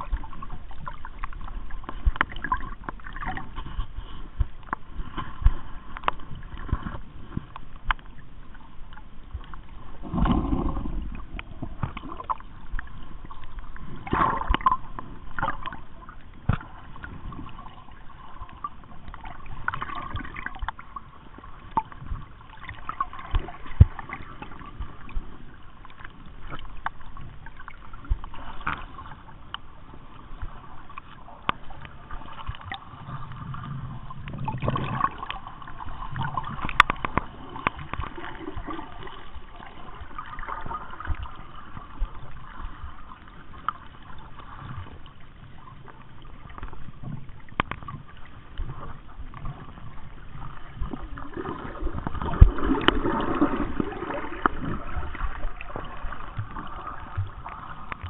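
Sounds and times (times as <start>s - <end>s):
sea water sloshing and gurgling: 0.0s - 58.0s
water surges: 0.0s - 58.0s
sharp clicks and crackles: 1.1s - 8.2s, 36.1s - 38.7s, 46.5s - 49.7s.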